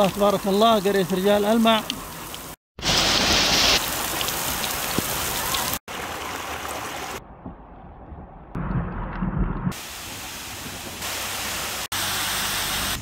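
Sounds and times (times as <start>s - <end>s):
floodwater rushing over rocks: 0.0s - 7.2s
dull rush of water: 0.0s - 7.6s, 9.7s - 13.0s.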